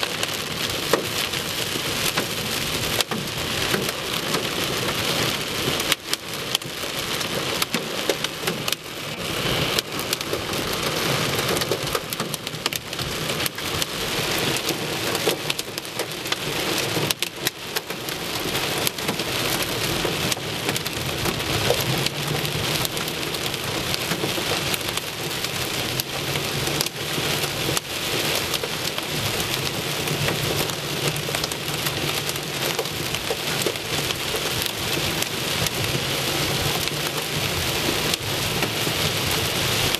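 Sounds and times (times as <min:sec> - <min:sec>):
hailstones clicking on car: 0:00.0 - 0:39.9
heavy rain on car roof: 0:00.0 - 0:39.9.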